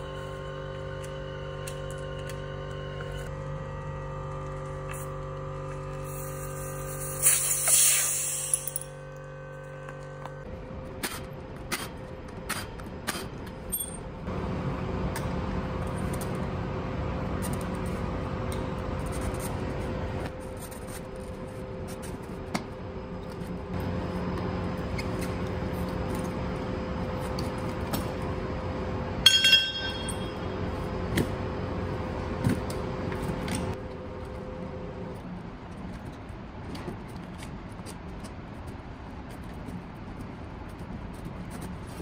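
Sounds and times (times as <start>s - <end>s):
steady hum: 0.0s - 36.1s
ringing metallic clatter: 29.2s - 30.6s.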